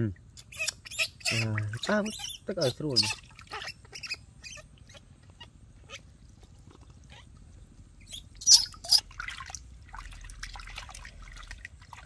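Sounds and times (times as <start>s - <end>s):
high-pitched monkey squeals: 0.4s - 6.1s, 7.1s - 7.3s, 8.0s - 9.1s
baby monkey whimpering: 3.0s - 6.0s, 8.1s - 9.0s.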